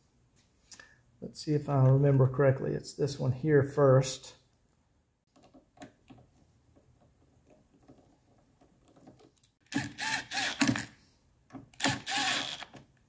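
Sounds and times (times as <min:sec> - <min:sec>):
cordless driver whirring: 0:09.7 - 0:10.9, 0:11.8 - 0:12.8
screwdriver clicking and scraping: 0:11.8 - 0:12.8.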